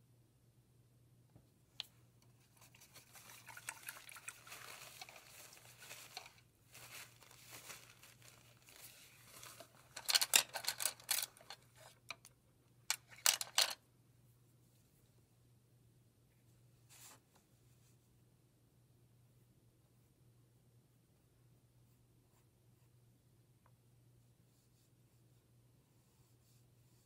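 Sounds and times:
faint low hum: 0:00.0 - 0:27.0
rattling and scraping handling noises: 0:04.5 - 0:12.3, 0:12.9 - 0:13.8
paintbrush strokes on canvas: 0:24.4 - 0:27.0.

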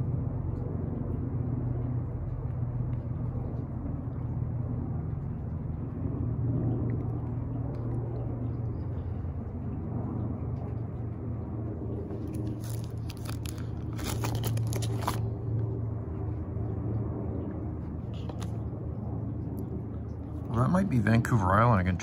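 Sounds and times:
plastic album sleeves crinkling: 0:12.2 - 0:15.3.

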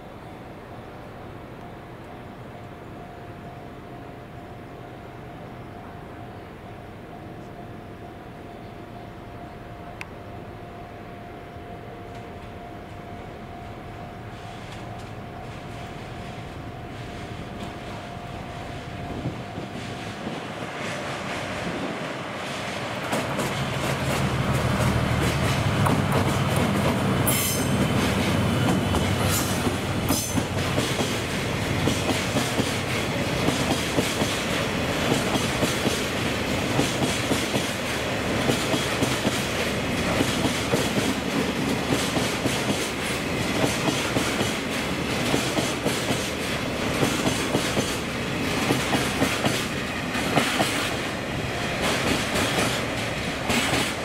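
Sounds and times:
diesel locomotive engine passing: 0:00.0 - 0:54.0
train wheels clacking over rail joints: 0:22.4 - 0:54.0.

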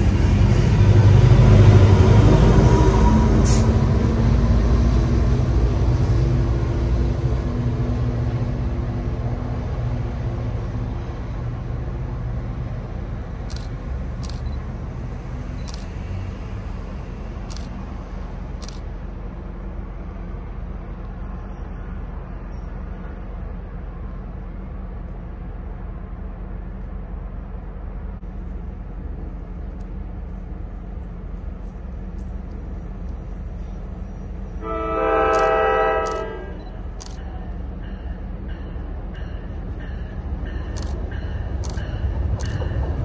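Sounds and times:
train rumble: 0:00.0 - 0:43.0
faint high ticks: 0:35.3 - 0:37.4, 0:40.0 - 0:42.8.

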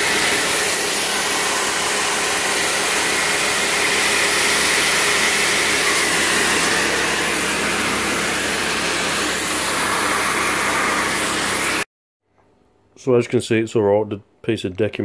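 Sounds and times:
water jet hissing on wood: 0:00.0 - 0:11.8
pressure washer pump humming: 0:00.0 - 0:11.9.

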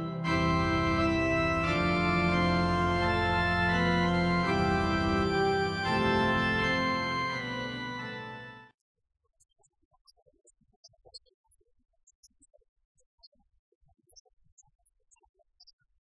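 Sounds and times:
organ chords: 0:00.0 - 0:08.7.

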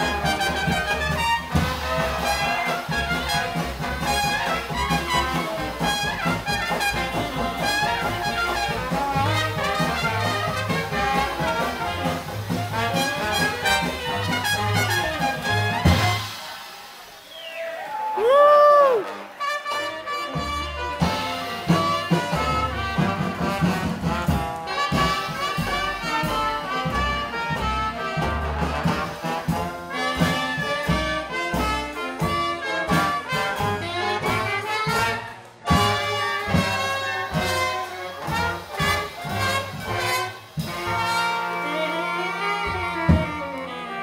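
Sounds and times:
jazz band playing: 0:00.0 - 0:44.0
horn sliding in pitch: 0:36.4 - 0:44.0.

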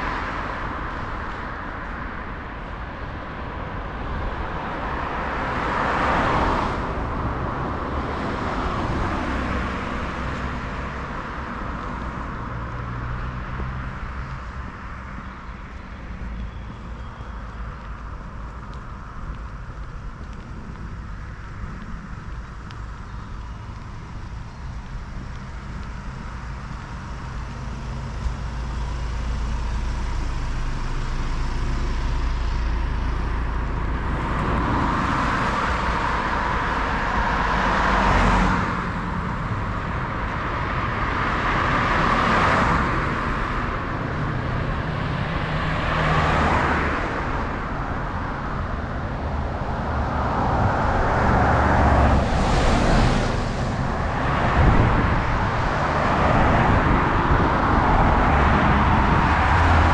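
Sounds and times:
tyres hissing on wet road: 0:20.5 - 0:59.9.

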